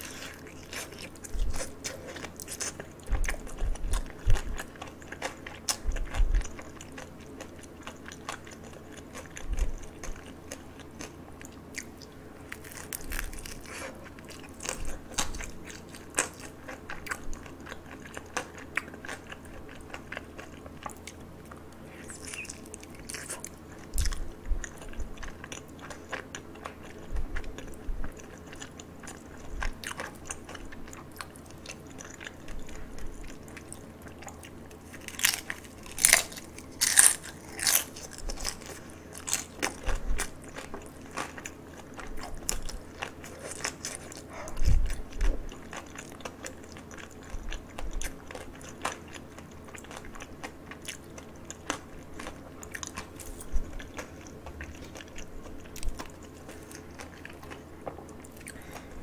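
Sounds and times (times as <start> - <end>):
crunching fried food: 0.0 - 59.0
wet chewing: 0.0 - 59.0.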